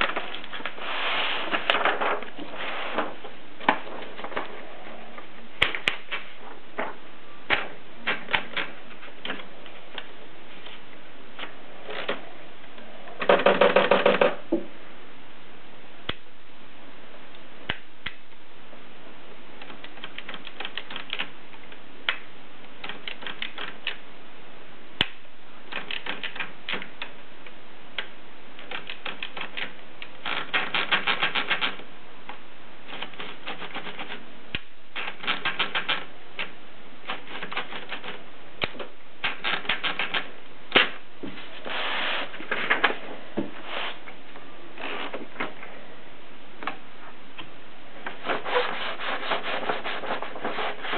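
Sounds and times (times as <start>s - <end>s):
typewriter ratchet clicking: 19.6s - 21.3s, 22.8s - 24.0s, 25.7s - 27.0s, 28.6s - 31.8s, 32.9s - 34.2s, 35.0s - 36.5s, 37.1s - 38.2s, 39.2s - 40.3s.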